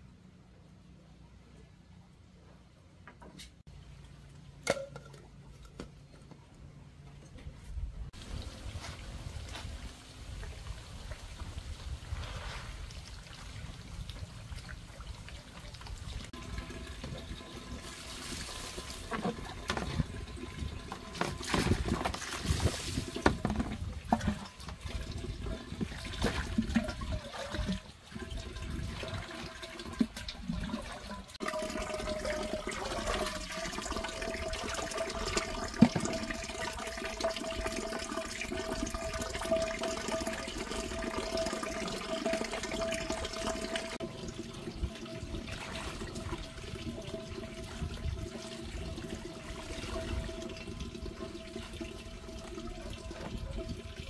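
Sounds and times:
splashing and sloshing: 8.2s - 33.8s, 43.3s - 52.4s
water running from a pipe: 8.2s - 54.0s.

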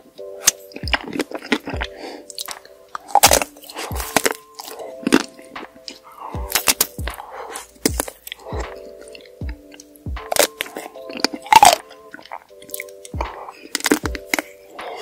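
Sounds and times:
background music: 0.0s - 15.0s
crunching and chewing: 0.4s - 15.0s
chocolate shell cracking: 2.3s - 5.5s, 6.5s - 7.0s, 10.3s - 14.5s.

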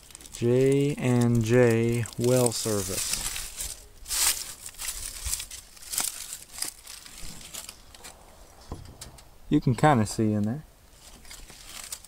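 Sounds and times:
rustling and crackling: 0.0s - 12.0s.

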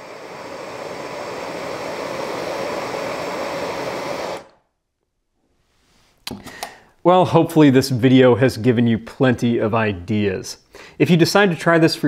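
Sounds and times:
propane torch hissing: 0.0s - 4.5s.

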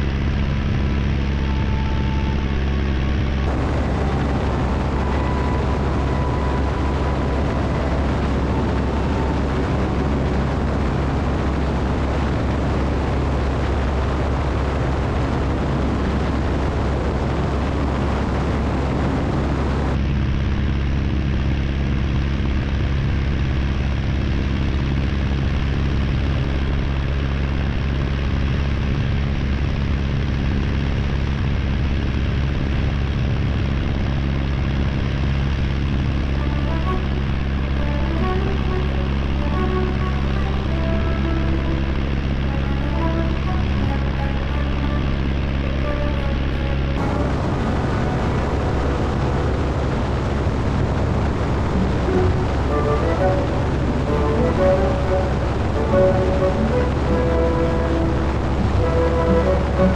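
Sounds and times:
biplane engine and propeller drone: 0.0s - 59.9s
wind rushing over airframe: 0.5s - 20.2s, 35.4s - 59.9s.

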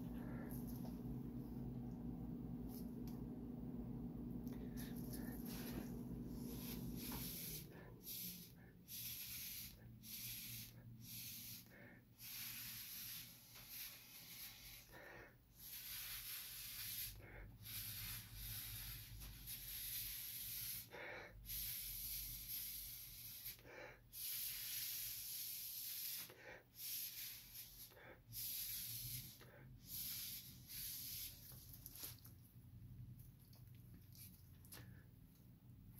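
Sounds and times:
air hissing from hose: 6.5s - 14.9s, 24.2s - 31.4s.

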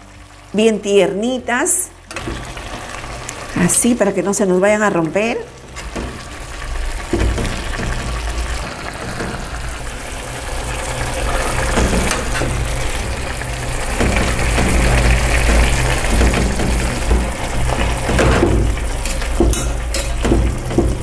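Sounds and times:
broth simmering and bubbling: 0.0s - 21.0s
utensils in metal pot: 14.0s - 20.4s.

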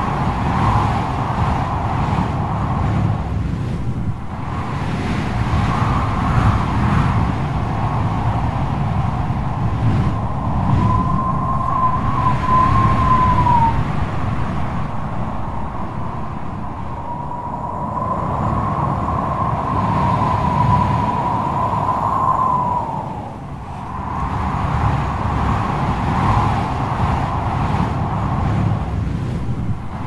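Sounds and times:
heavy surf rumble: 0.0s - 30.0s
wind rushing over microphone: 0.0s - 30.0s
high wavering whistle tone: 10.2s - 13.8s.

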